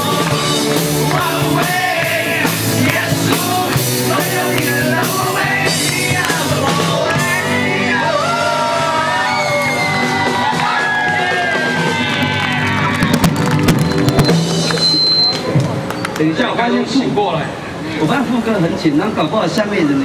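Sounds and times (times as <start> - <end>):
drum kit: 0.0 - 8.9, 9.5 - 15.9
men singing: 0.0 - 9.8
live rock band: 0.0 - 16.1.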